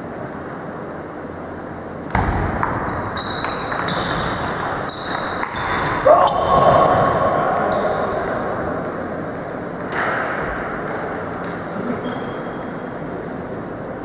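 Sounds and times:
table tennis balls clicking: 0:02.6 - 0:05.9.

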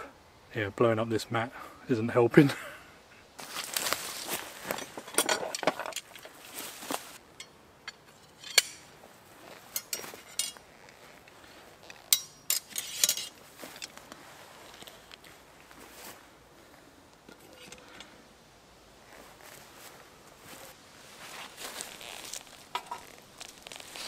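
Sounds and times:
backpack and fabric rustling: 0:03.4 - 0:07.2, 0:09.2 - 0:12.1, 0:12.7 - 0:16.8, 0:19.0 - 0:24.0
metal tent poles clinking: 0:03.4 - 0:15.3, 0:17.2 - 0:18.1, 0:21.7 - 0:24.0.

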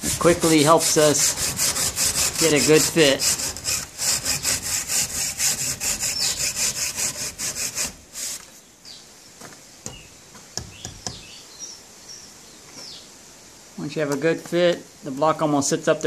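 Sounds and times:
hand saw cutting concrete block: 0:00.0 - 0:08.4.

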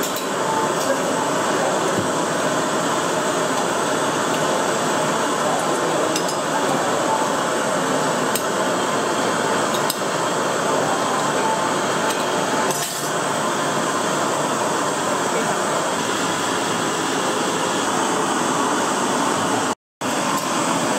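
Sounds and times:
metal utensils clinking on pots: 0:00.0 - 0:01.0, 0:05.6 - 0:06.8, 0:09.7 - 0:10.0, 0:12.0 - 0:13.1
busy kitchen noise: 0:00.0 - 0:20.9.

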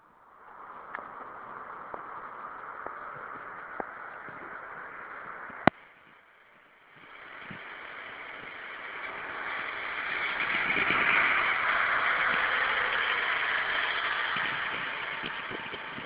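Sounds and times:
heavy rain hissing: 0:00.5 - 0:16.0.

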